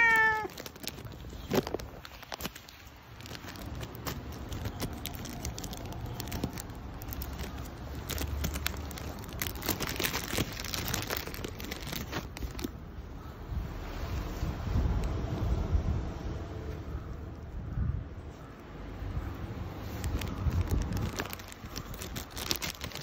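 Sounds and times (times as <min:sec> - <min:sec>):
crinkling and rustling: 0:00.0 - 0:12.9, 0:19.6 - 0:23.0
wind noise: 0:13.4 - 0:23.0.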